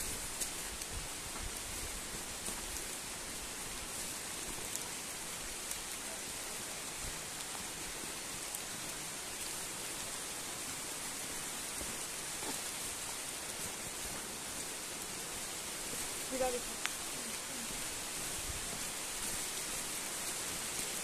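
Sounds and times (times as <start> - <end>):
falling water hiss: 0.0 - 21.0
faint ticks: 16.8 - 17.5.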